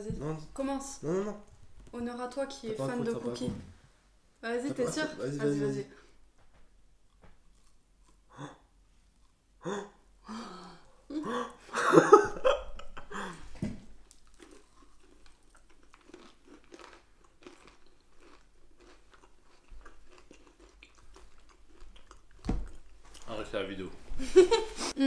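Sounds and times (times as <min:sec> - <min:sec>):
chewing with small crunches: 0:07.1 - 0:08.3, 0:14.0 - 0:23.5
crunching bite of cookie: 0:14.0 - 0:23.3.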